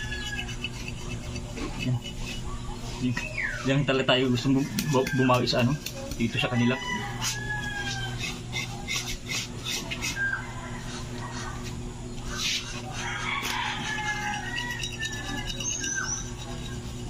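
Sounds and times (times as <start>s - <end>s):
knife scraping hide: 0.0s - 3.6s, 4.2s - 17.0s
small birds calling: 0.0s - 4.1s, 10.0s - 16.8s
chickens calling: 0.0s - 17.0s
steady low hum: 0.0s - 17.0s.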